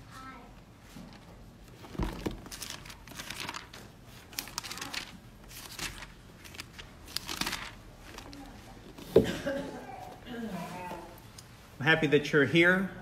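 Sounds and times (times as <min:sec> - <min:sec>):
paper pages rustling: 0:00.8 - 0:09.2.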